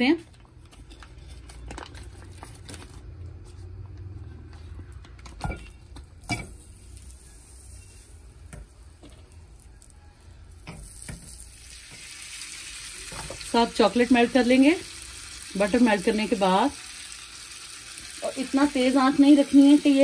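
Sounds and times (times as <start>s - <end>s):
butter sizzling in a pan: 10.6s - 20.0s.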